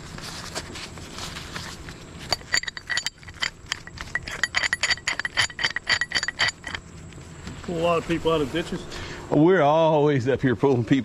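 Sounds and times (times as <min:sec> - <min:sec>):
metal chain clinking and rattling: 0:02.3 - 0:06.9.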